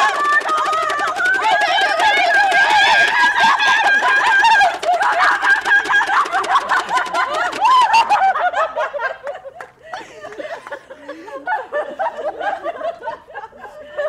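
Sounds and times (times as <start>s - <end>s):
sharp clicks: 0.0s - 8.2s
women shrieking: 0.0s - 8.6s
women laughing: 0.0s - 14.0s.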